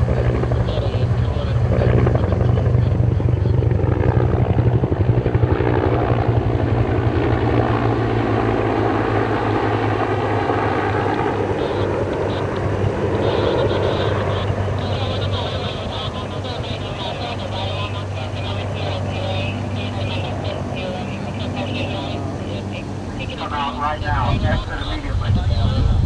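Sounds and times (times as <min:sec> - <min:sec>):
helicopter rotor thudding: 0:00.0 - 0:18.3.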